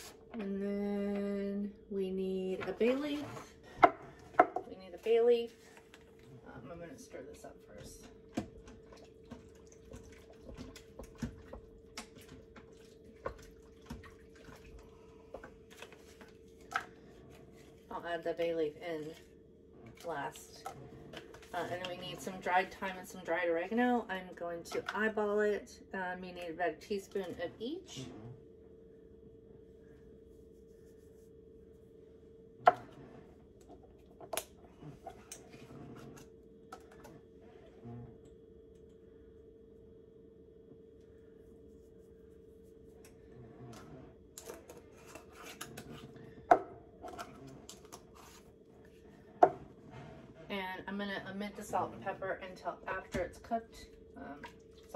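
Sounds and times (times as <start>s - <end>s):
faint steady hum: 0.0s - 54.9s
soup sloshing while stirred: 8.2s - 17.9s.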